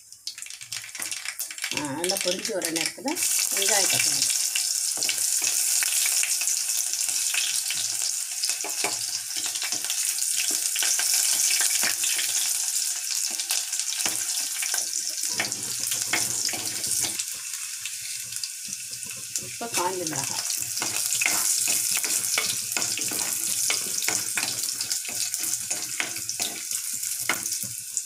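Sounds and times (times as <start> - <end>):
seeds spluttering in hot oil: 0.0 - 28.0.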